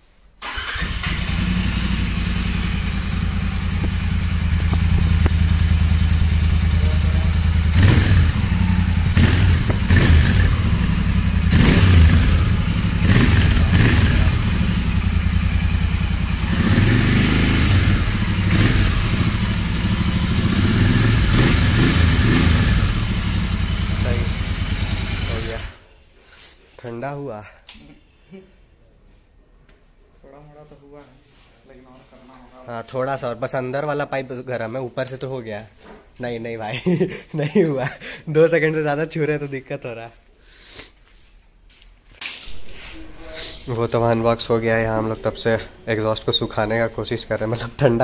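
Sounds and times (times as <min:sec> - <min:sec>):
motorcycle engine idling and revving: 0:00.4 - 0:25.8.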